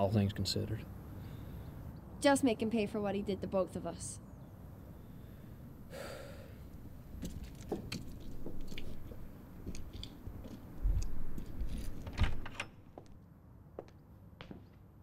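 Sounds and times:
door clicks and knocks: 12.0 - 12.8.

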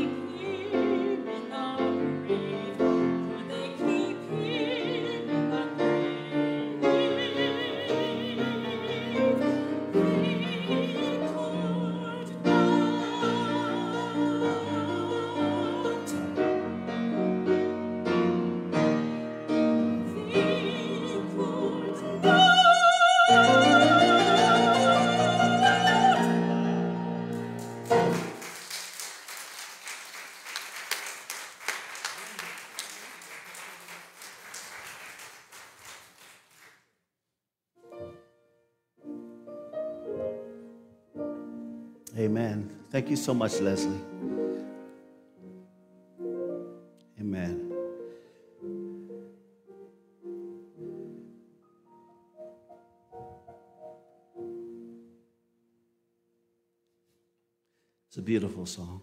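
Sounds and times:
woman singing with vibrato: 0.0 - 16.6, 20.0 - 27.3
piano accompaniment: 0.0 - 28.8, 37.8 - 55.8
audience applause: 27.3 - 36.8.

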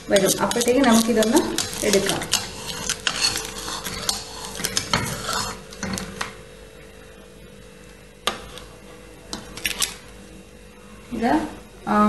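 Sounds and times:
metal spatula scraping pan: 0.0 - 5.6.

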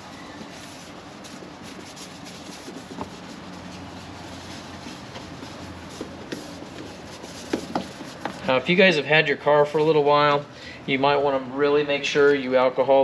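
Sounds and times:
hand rubbing plastic panel: 0.0 - 8.6
low garage hum: 0.0 - 13.0.

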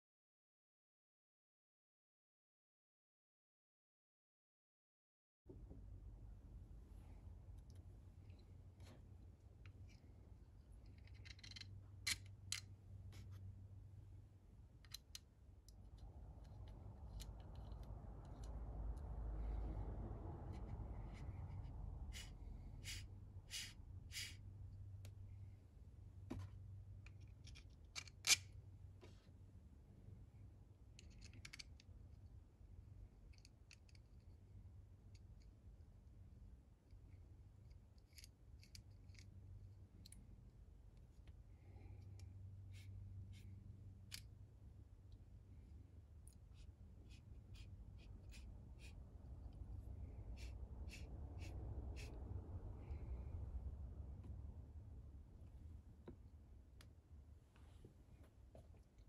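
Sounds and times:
low steady hum: 5.5 - 59.0
plastic parts clicking: 10.9 - 12.7.

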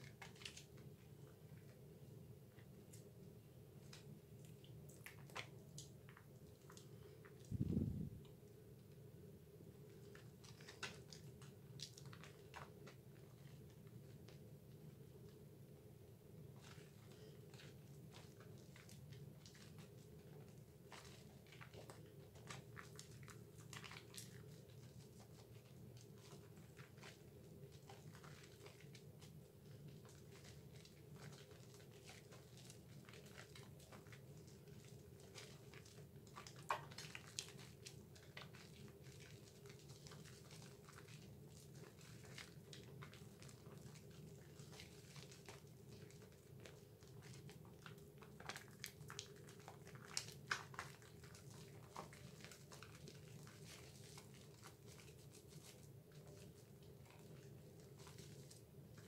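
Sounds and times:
hands lathering soap squelching: 0.0 - 15.5, 16.2 - 59.0
low steady hum: 0.1 - 31.3.

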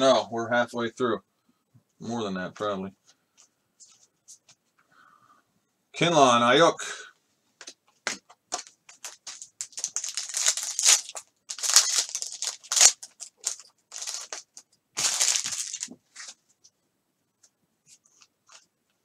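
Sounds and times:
foil wrapper tearing and crinkling: 8.6 - 15.9.

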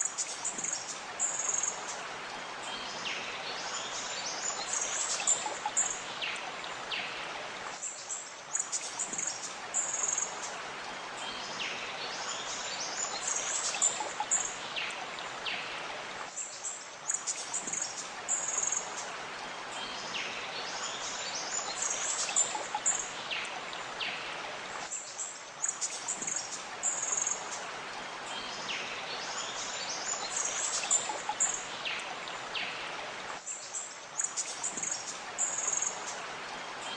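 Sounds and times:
flowing water: 0.0 - 36.9.

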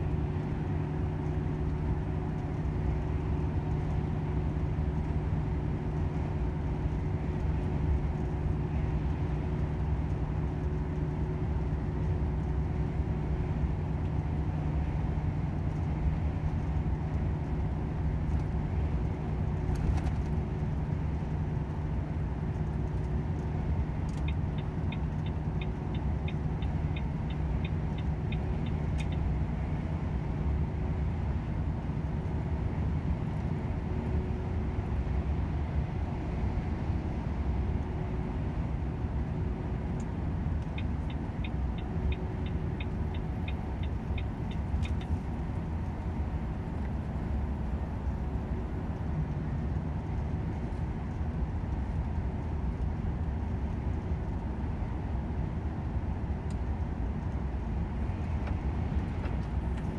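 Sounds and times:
diesel truck engine running: 0.0 - 59.9
road rumble: 0.0 - 59.9
turn signal ticking: 20.6 - 30.2, 39.1 - 54.7.

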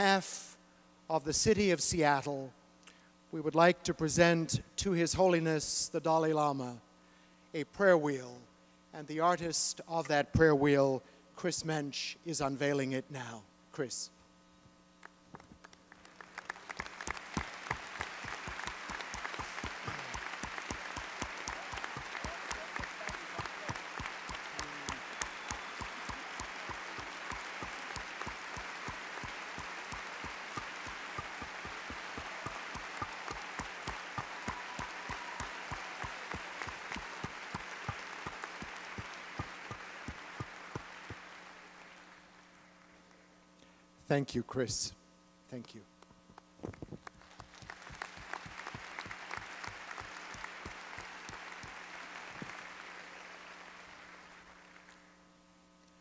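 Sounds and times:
large audience applauding: 15.6 - 42.4, 47.0 - 55.1.

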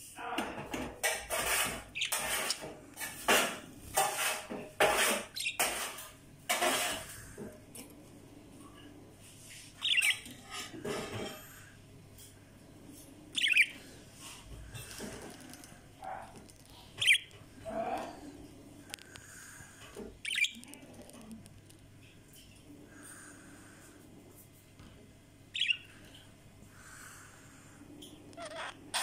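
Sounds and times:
budgerigar scratchy noises: 1.0 - 7.4, 9.6 - 11.6, 13.4 - 13.8, 14.7 - 19.6, 20.2 - 21.8, 25.6 - 26.2, 26.8 - 29.0.

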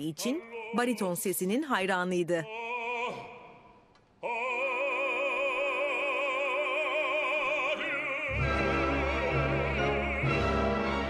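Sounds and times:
baritone singing with vibrato: 0.0 - 11.0
orchestra playing: 8.3 - 11.0.

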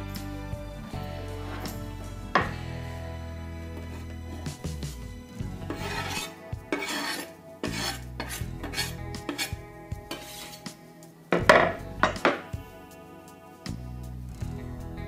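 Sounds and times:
background music: 0.0 - 15.0
knife scraping wooden board: 3.8 - 4.6, 5.6 - 10.8.

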